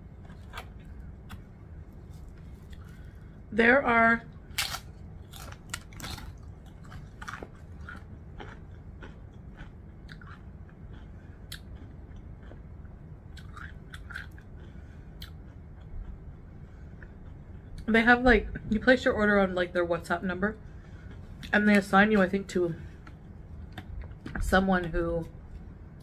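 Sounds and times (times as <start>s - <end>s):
person chewing food: 0.0s - 3.4s, 4.5s - 17.9s, 20.6s - 21.6s, 22.9s - 24.4s.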